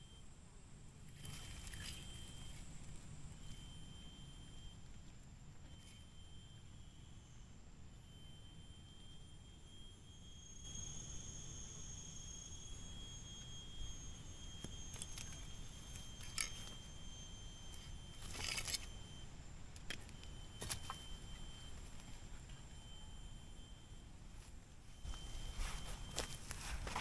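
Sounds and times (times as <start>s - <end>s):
insect high-pitched whine: 0.0s - 27.0s.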